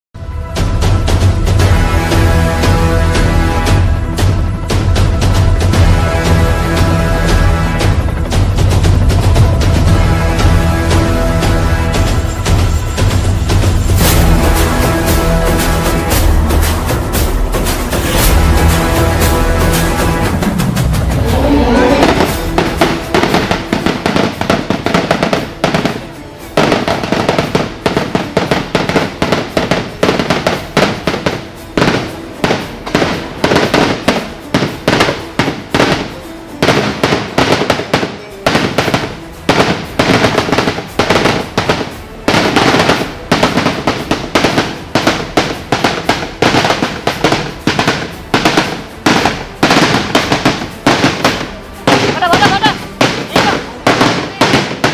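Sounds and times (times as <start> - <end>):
firecrackers banging: 0.4 - 54.9.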